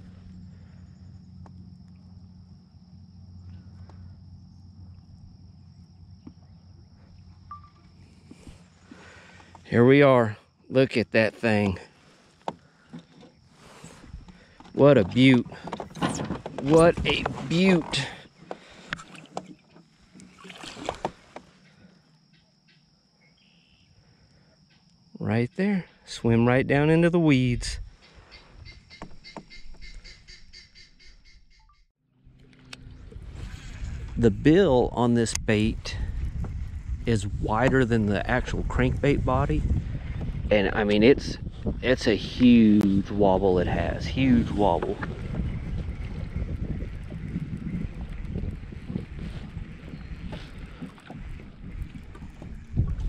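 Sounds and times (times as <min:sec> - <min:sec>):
high insect drone: 0:00.0 - 0:11.3, 0:11.9 - 0:30.2
low steady hum: 0:00.0 - 0:12.9
water splashing and sloshing: 0:11.9 - 0:22.2, 0:32.2 - 0:34.3, 0:43.0 - 0:53.0.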